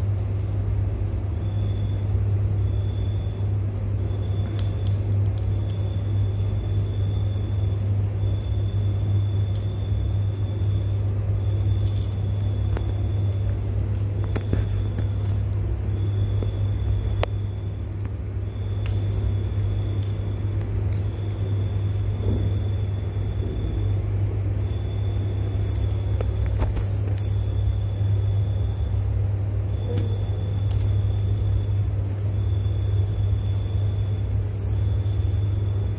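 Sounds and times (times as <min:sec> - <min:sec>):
faint high whine: 0:00.0 - 0:35.9
low hum: 0:00.0 - 0:35.9.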